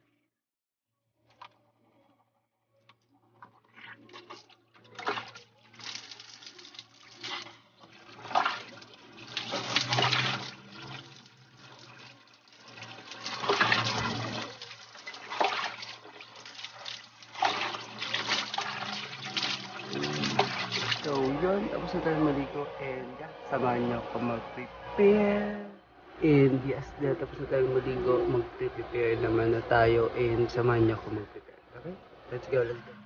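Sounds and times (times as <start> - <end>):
water splashing: 3.5 - 22.3
low steady hum: 12.6 - 33.0.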